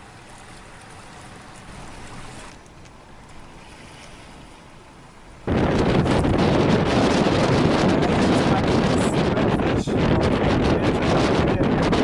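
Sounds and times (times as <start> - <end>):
choppy water: 0.0 - 12.0
wind on the microphone: 5.4 - 12.0.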